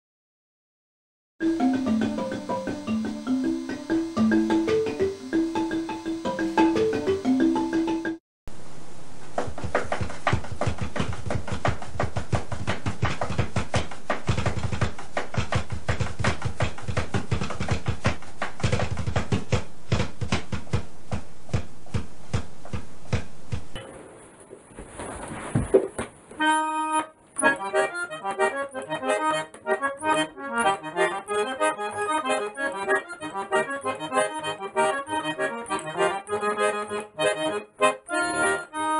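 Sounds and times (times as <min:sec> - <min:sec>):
drums played fast with sticks: 0:01.4 - 0:08.1
marimba melody: 0:01.4 - 0:08.2.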